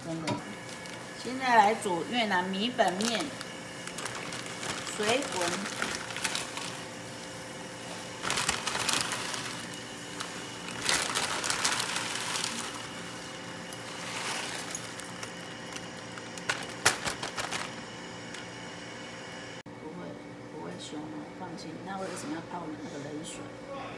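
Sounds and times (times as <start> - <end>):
steady hum: 0.0 - 23.9
dry noodles crackling in boiling water: 0.5 - 18.6.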